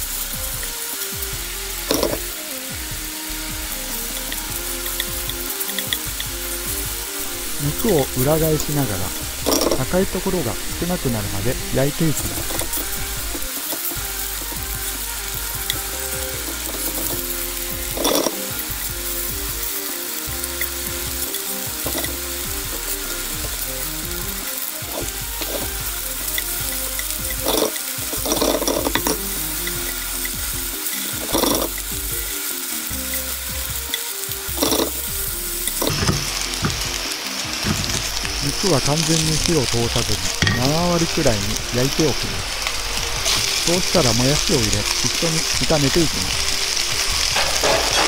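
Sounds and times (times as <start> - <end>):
pork sizzling in a frying pan: 0.0 - 48.0
chopsticks scraping and tapping pan: 1.9 - 2.4, 4.1 - 38.4, 46.4 - 48.0.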